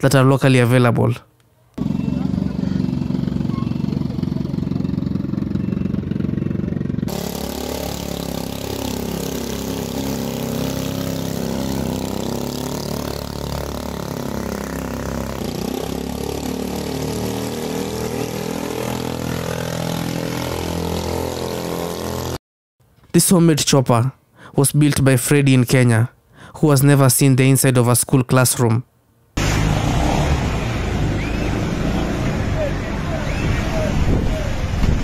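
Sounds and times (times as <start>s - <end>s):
light aircraft piston engine: 1.8s - 16.2s.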